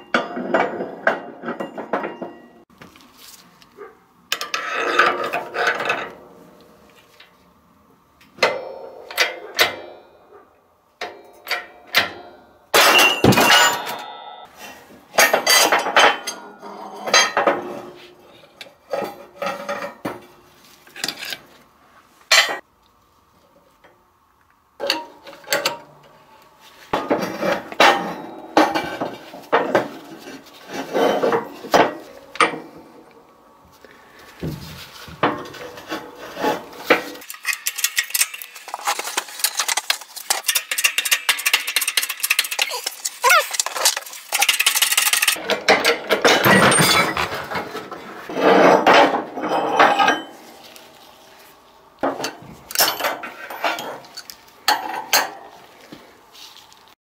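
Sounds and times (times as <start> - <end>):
metal parts clanking on steel: 36.8 - 50.4, 52.1 - 55.4
sharp metal knocks and rattles: 36.8 - 50.4.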